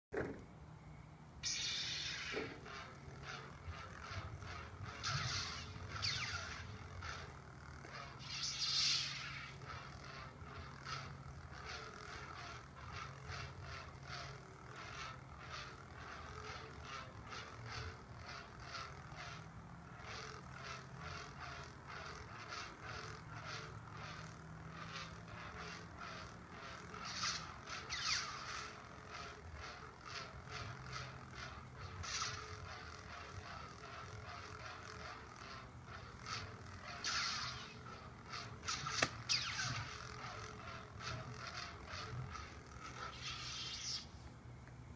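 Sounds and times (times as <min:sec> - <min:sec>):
toy lightsaber hum: 0:00.2 - 0:44.9
rhythmic pulsing hiss: 0:00.7 - 0:44.9
lightsaber swing whooshes: 0:01.4 - 0:44.4.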